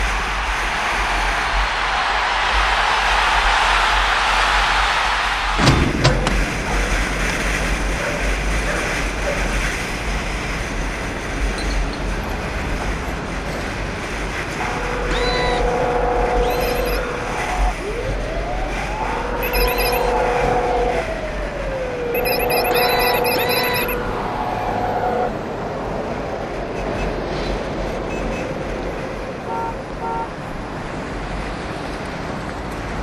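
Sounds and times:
wind rush: 0.0 - 29.4
high electronic tones: 16.4 - 18.0, 18.9 - 20.9, 22.1 - 25.2.

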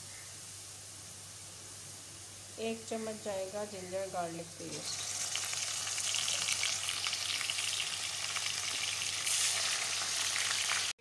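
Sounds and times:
onions sizzling in hot oil: 2.3 - 11.0.

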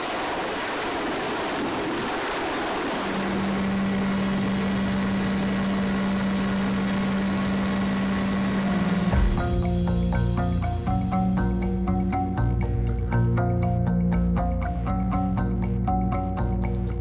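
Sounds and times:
even hum: 1.0 - 17.0
aircraft cabin drone: 1.4 - 17.0
music with mallet notes: 9.0 - 17.0.

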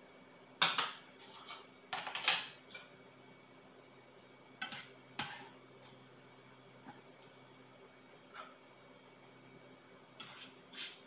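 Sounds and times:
metal utensil scraping metal bowl: 10.2 - 11.0.

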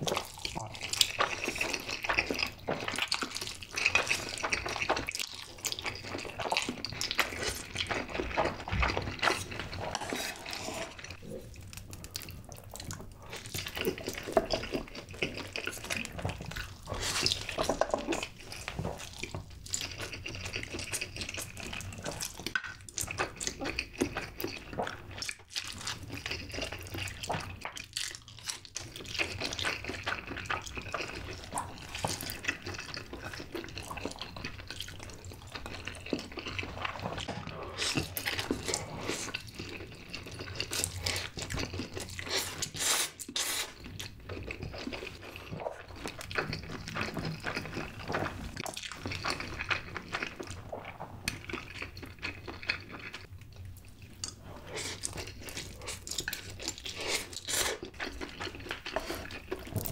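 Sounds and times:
people slurping noodles: 8.8 - 11.5.

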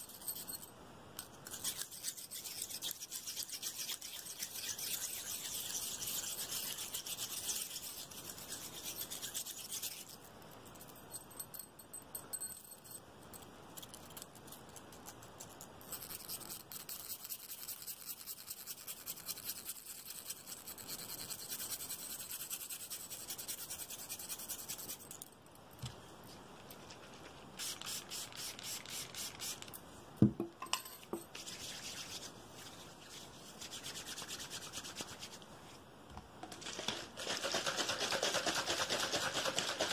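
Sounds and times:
hands rubbing and scratching: 1.5 - 10.2, 26.6 - 29.7, 31.2 - 35.5.

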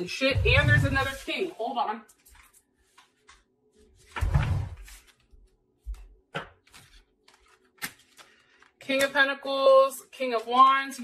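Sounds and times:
cards thumping: 5.9 - 9.1
cards tapping and clicking: 6.4 - 9.1.

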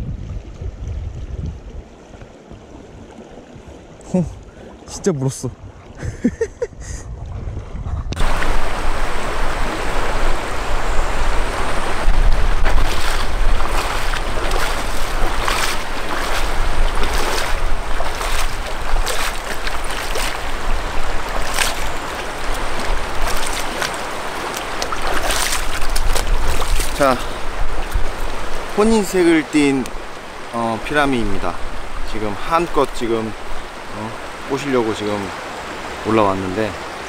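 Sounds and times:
wind buffeting microphone: 0.0 - 29.1
feet wading through water: 0.2 - 36.0
river rushing over stones: 8.2 - 37.0.

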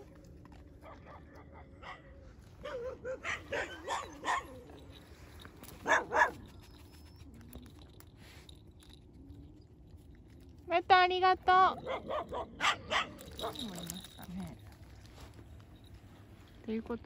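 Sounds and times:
dogs barking: 0.8 - 4.8, 5.7 - 6.5, 11.7 - 14.4.

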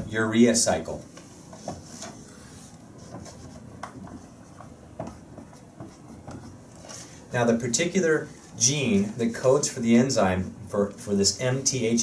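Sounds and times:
marker rubbing on whiteboard: 1.5 - 7.0.

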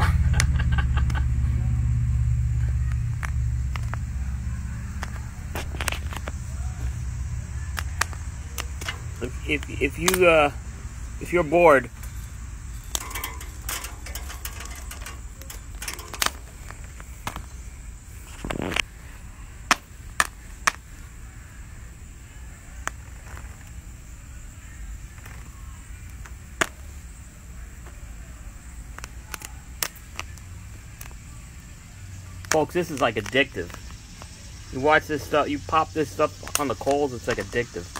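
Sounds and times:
popcorn kernels popping: 0.0 - 10.5, 11.2 - 17.5, 28.7 - 31.3, 32.3 - 34.4, 36.1 - 37.9
low steady background rumble: 0.0 - 37.9.

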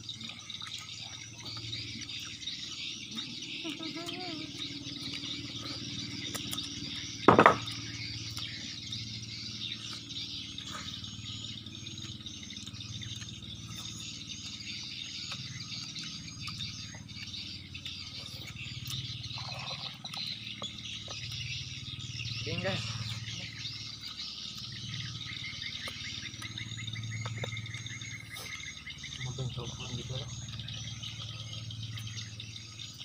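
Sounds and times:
birds chirping: 0.0 - 33.0
insects chirping: 0.0 - 33.0
loud thump: 7.3 - 7.8.

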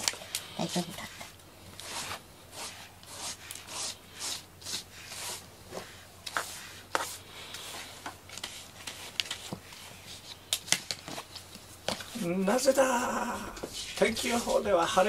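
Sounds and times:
brush stroking cat fur: 0.1 - 10.4, 13.4 - 15.0.

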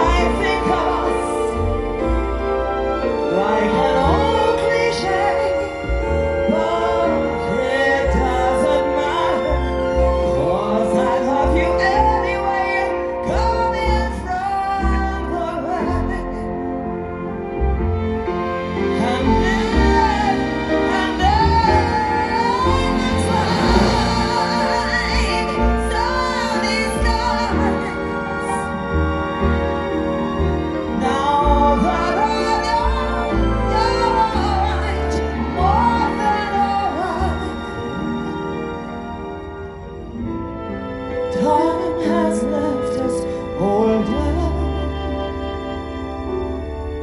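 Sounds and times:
woman singing: 0.0 - 1.9, 3.0 - 16.8, 18.9 - 28.9, 30.9 - 38.0, 41.3 - 46.0
piano: 0.0 - 47.0
orchestra strings holding chords: 17.9 - 47.0
deep bass notes: 21.2 - 26.2.

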